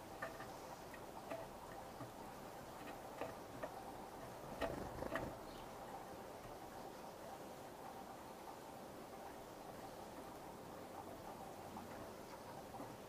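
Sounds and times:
woodpecker pecking on metal feeder: 0:00.0 - 0:05.4.

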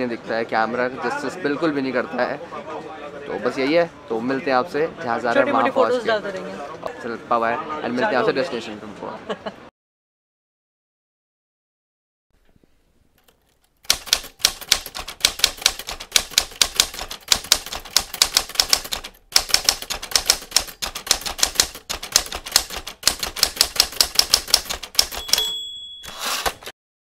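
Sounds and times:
typewriter keystrokes clattering: 0:13.3 - 0:26.7
typewriter bell ding: 0:25.0 - 0:26.7.

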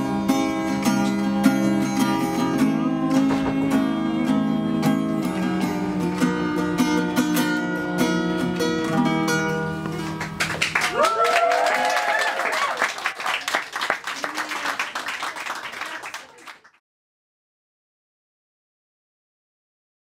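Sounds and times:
acoustic guitar chords: 0:00.0 - 0:10.6
people clapping: 0:09.9 - 0:16.8
people cheering: 0:10.5 - 0:16.8.

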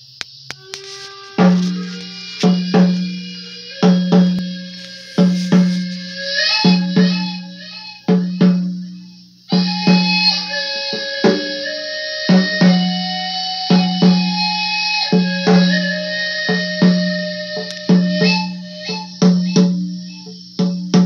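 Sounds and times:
hand drum beating: 0:00.5 - 0:08.9, 0:15.1 - 0:21.0
flute playing slow melody: 0:00.5 - 0:20.5.

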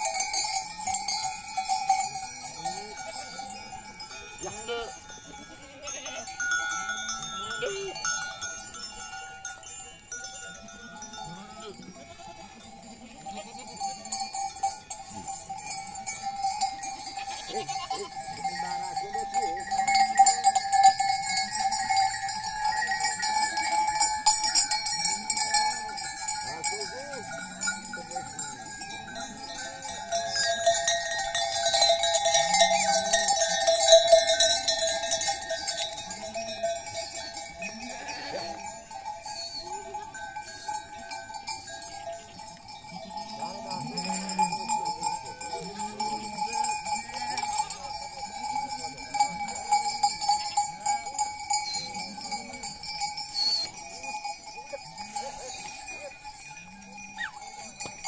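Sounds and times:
sheep bells clanking: 0:00.0 - 0:58.0
sheep bleating: 0:17.1 - 0:18.3, 0:37.8 - 0:38.6, 0:43.1 - 0:44.6.

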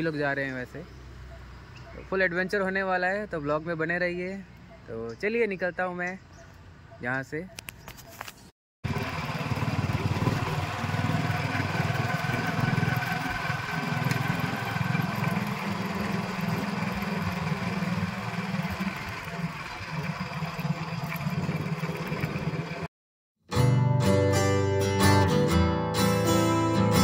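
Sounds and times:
motorcycle engine running: 0:08.8 - 0:22.9.

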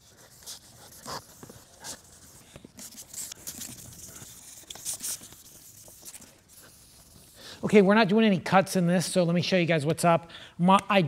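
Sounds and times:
sandpaper rubbing on plastic: 0:00.0 - 0:07.4.

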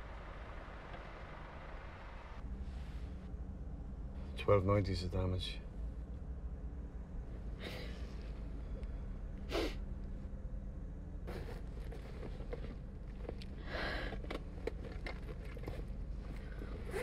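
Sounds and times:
car cabin hum: 0:00.0 - 0:03.8, 0:11.0 - 0:17.0.

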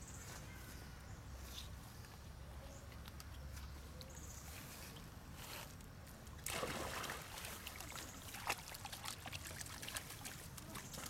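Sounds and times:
water splashing and trickling: 0:06.2 - 0:11.0.

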